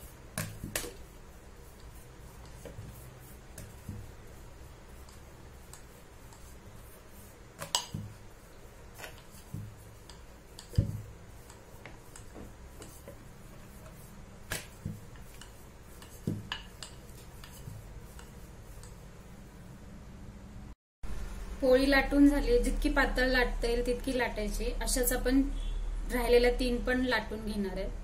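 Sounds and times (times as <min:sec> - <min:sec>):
rolling pin rolling dough: 0:00.0 - 0:19.7.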